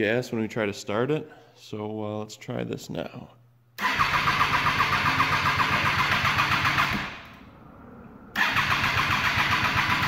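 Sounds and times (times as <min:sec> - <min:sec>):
engine cranking by electric starter: 0:03.8 - 0:07.3, 0:08.3 - 0:10.0.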